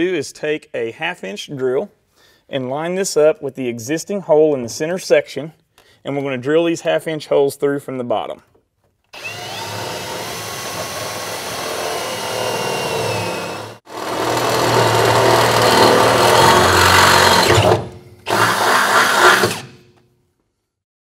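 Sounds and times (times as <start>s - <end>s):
electric drill boring through metal: 9.2s - 19.7s.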